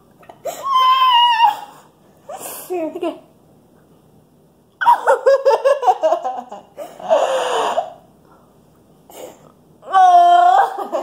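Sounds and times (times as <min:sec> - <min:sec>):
girls laughing: 0:04.8 - 0:07.0, 0:10.5 - 0:11.0.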